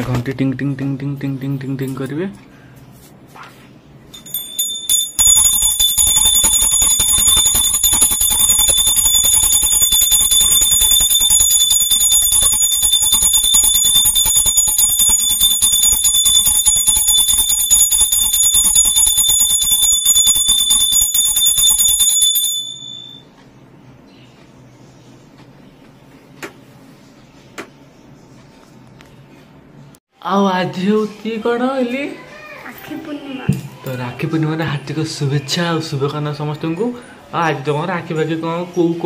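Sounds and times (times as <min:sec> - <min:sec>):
hand bell ringing rapidly: 0:04.1 - 0:23.2.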